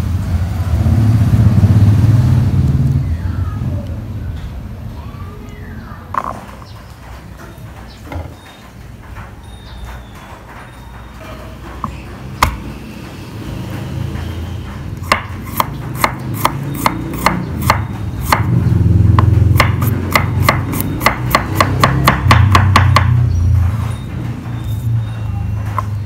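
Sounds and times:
knife chopping on wooden board: 11.8s - 12.6s, 15.0s - 23.2s.

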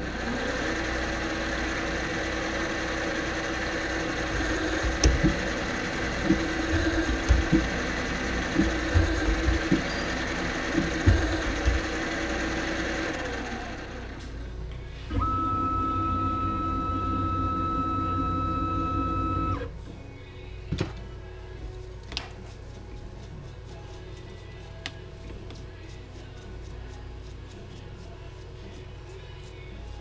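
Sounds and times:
milling machine spindle running: 0.0s - 14.3s, 15.1s - 19.7s.

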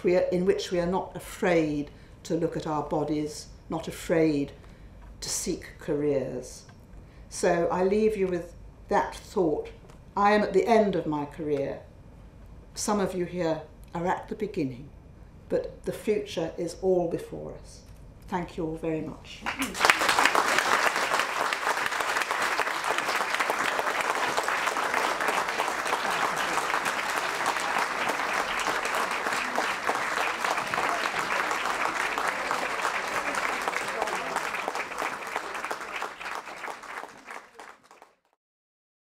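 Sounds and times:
audience applauding: 19.5s - 38.4s.

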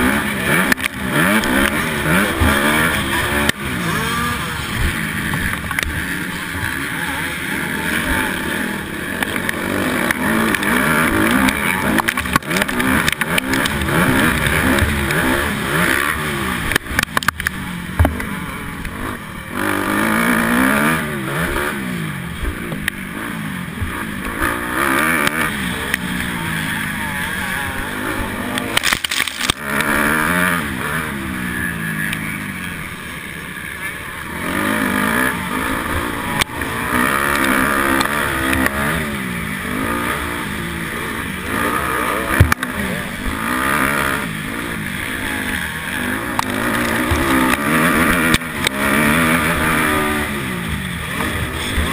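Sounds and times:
motocross bike engine revving: 0.0s - 51.9s
steady rush of noise: 0.0s - 51.9s.

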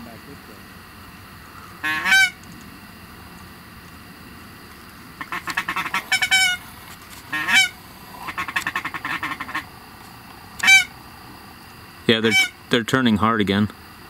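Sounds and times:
goose honking: 1.8s - 2.4s, 5.2s - 6.7s, 7.3s - 9.7s, 10.6s - 10.9s, 12.2s - 12.6s.

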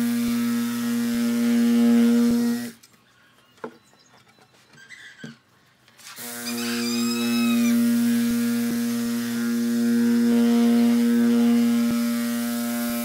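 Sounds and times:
orbital sander humming: 0.0s - 2.8s, 6.2s - 13.0s.

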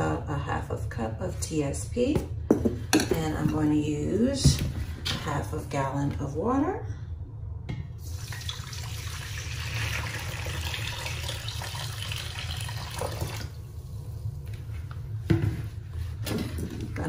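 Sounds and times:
water pouring into metal bowl: 8.0s - 13.6s.

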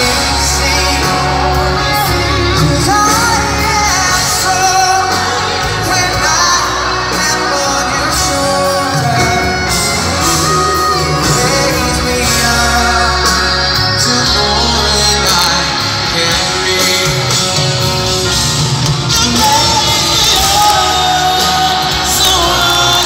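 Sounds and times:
band playing pop ballad: 0.0s - 23.0s
man singing into a microphone: 0.0s - 23.0s.

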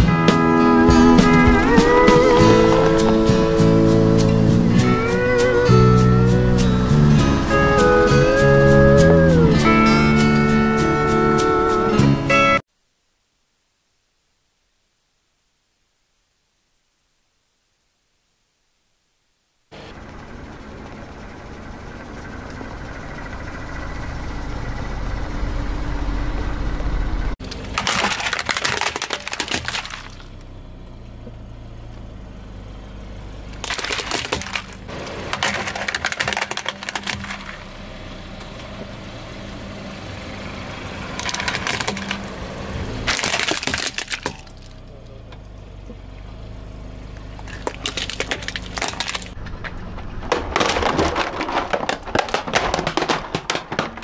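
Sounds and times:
low car hum: 0.0s - 12.6s, 19.7s - 54.0s
plastic toys cracking under tyre: 27.4s - 30.5s, 33.5s - 37.8s, 41.1s - 42.3s, 43.0s - 44.8s, 47.3s - 54.0s.

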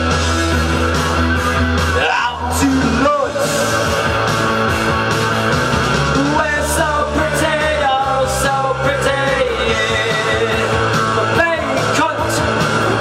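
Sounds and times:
punk rock music: 0.0s - 13.0s
man singing: 2.0s - 3.9s, 6.1s - 13.0s.

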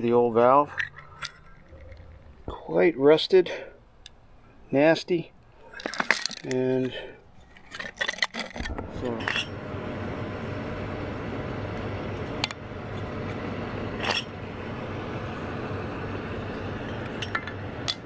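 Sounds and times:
metal parts clinking: 0.4s - 2.3s, 5.6s - 9.5s.

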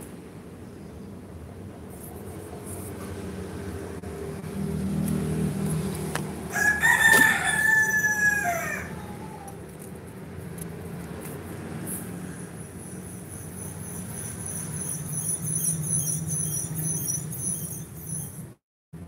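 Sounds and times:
distant rooster crowing: 6.4s - 9.6s.

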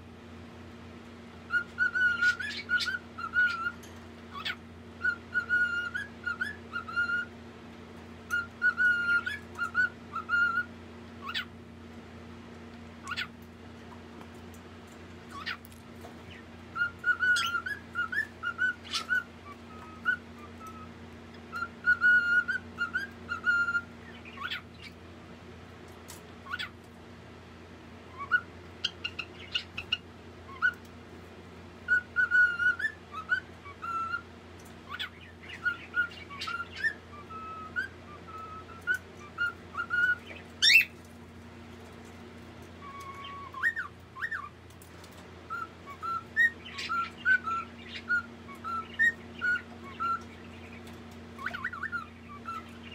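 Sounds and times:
steady low hum: 0.0s - 52.9s
parrot chirping and chattering: 1.5s - 7.3s, 8.2s - 11.6s, 13.0s - 14.1s, 14.9s - 25.0s, 26.0s - 26.9s, 28.1s - 30.9s, 31.8s - 52.9s
parrot rising squeak: 1.5s - 7.3s, 16.7s - 20.9s, 21.5s - 24.8s, 31.9s - 34.3s, 34.9s - 41.0s, 42.8s - 44.6s, 45.5s - 50.4s, 51.4s - 52.9s.

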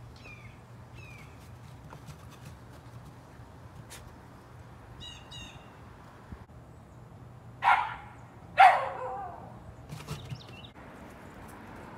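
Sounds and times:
dog barking: 7.6s - 9.5s.

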